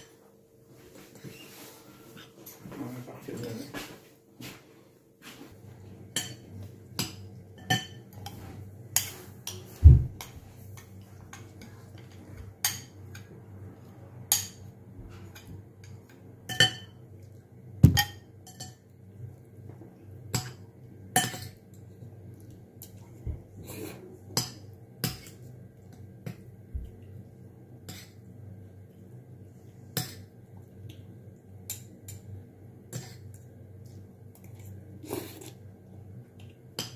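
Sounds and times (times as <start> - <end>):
faint steady hum: 0.0 - 36.9
cutlery clinking on ceramic bowl: 6.1 - 8.4, 14.3 - 17.0, 17.8 - 18.9, 21.2 - 21.6.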